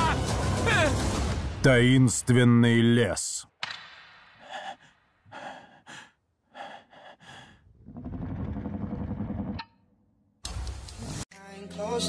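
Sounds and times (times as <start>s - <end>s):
man breathing hard and gasping: 4.4s - 7.8s.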